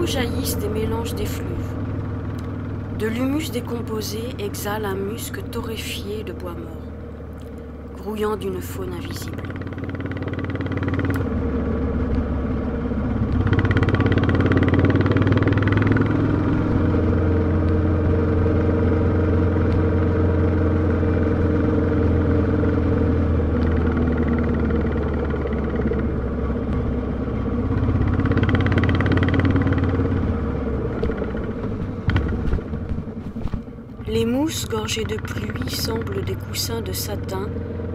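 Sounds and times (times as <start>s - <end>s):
motorcycle engine running: 0.0s - 37.9s.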